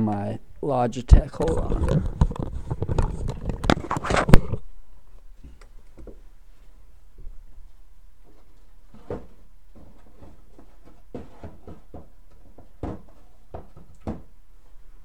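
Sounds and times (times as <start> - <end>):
objects knocking and clattering: 1.4 - 4.6, 8.2 - 14.4.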